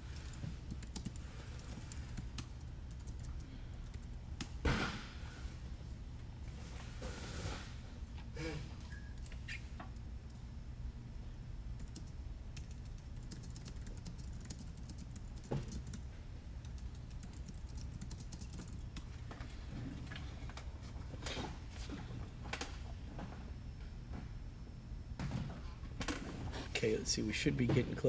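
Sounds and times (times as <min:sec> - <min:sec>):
steady low hum: 0:00.0 - 0:28.0
keyboard typing clicks: 0:00.1 - 0:04.5, 0:11.8 - 0:16.0, 0:16.6 - 0:19.1.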